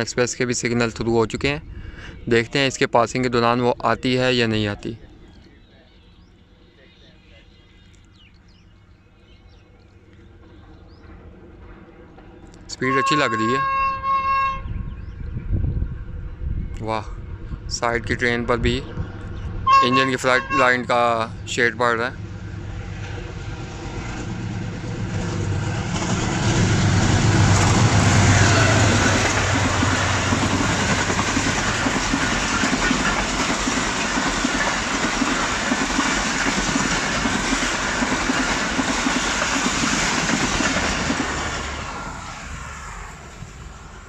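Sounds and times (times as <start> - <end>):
locomotive engine drone: 0.0 - 44.0
train wheels clattering over rail joints: 22.9 - 41.8.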